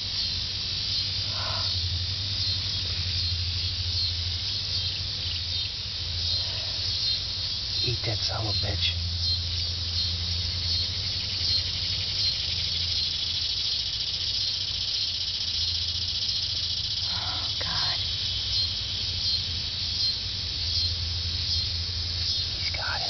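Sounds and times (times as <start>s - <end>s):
low hum: 0.0s - 13.3s
insects chorus: 0.0s - 23.0s.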